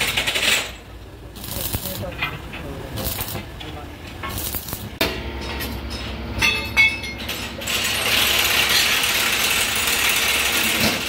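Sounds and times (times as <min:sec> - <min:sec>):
ringing metal clinks: 0:05.4 - 0:07.6.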